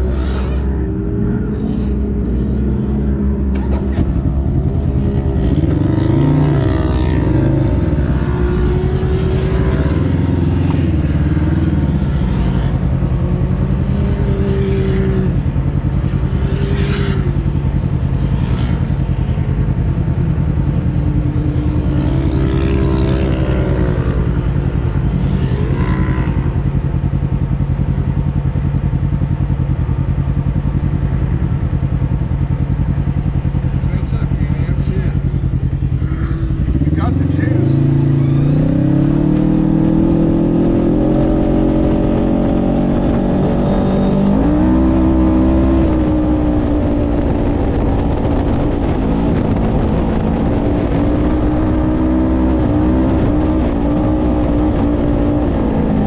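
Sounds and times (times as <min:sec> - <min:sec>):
utility vehicle engine driving on sand: 0:00.0 - 0:56.0.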